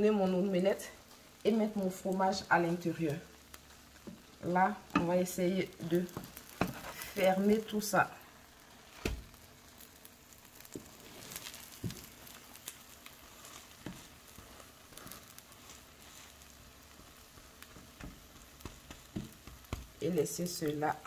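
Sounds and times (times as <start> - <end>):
omelette sizzling in frying pan: 0.0 - 21.0
wooden spatula knocking pan: 6.1 - 7.0, 10.7 - 12.4, 17.1 - 20.0.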